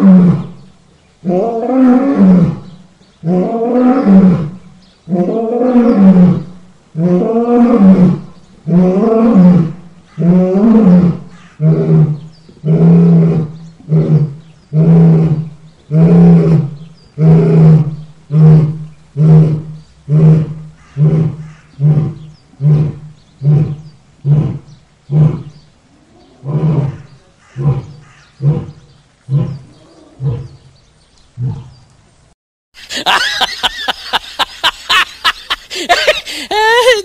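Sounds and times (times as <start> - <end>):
lion roaring: 3.2 - 30.7, 31.4 - 31.8.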